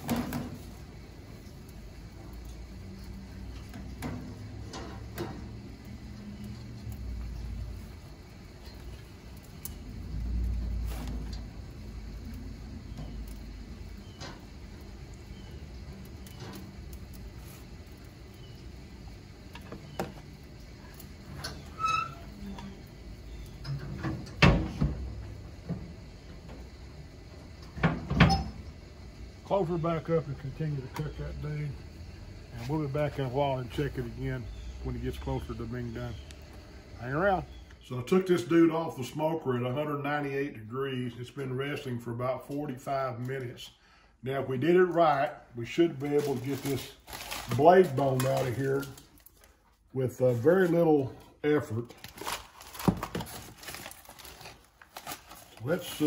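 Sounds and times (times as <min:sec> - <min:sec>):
low steady rumble: 0:00.4 - 0:38.0
metal door clanking shut: 0:23.6 - 0:25.0, 0:27.8 - 0:28.6.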